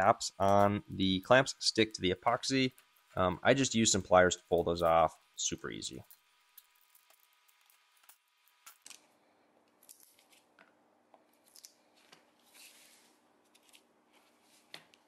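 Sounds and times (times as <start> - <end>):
soft scrape: 12.4 - 13.2.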